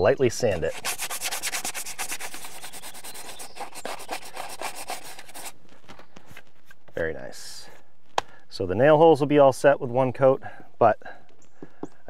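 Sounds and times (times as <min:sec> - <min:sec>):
sandpaper sanding by hand: 0:00.3 - 0:07.1.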